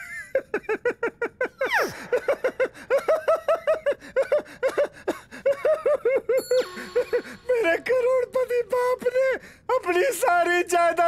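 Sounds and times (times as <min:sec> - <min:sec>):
man laughing in rhythmic bursts: 0:00.0 - 0:07.9
man comic sobbing: 0:00.0 - 0:11.0.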